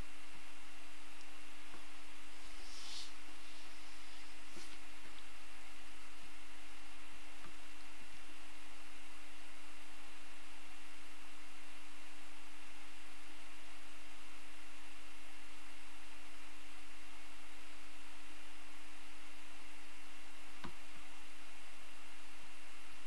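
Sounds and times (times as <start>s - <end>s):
electrical hum: 0.0s - 23.0s
hiss: 2.4s - 4.8s
click: 20.6s - 20.8s.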